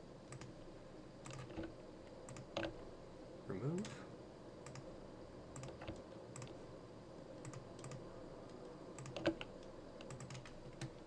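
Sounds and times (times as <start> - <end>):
low steady hiss: 0.0 - 11.0
keyboard and mouse clicks: 0.3 - 0.6, 1.2 - 2.8, 4.6 - 4.9, 5.5 - 6.6, 7.4 - 11.0.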